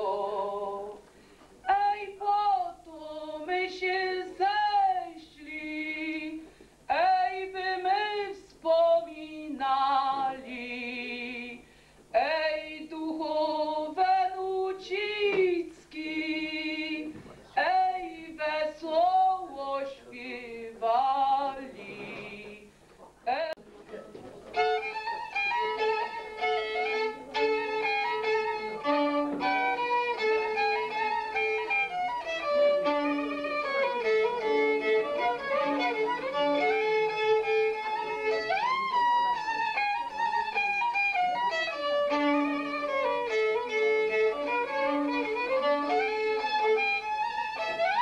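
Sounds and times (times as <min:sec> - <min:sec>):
woman singing unaccompanied: 0:00.0 - 0:01.0, 0:01.6 - 0:22.7, 0:23.3 - 0:23.6.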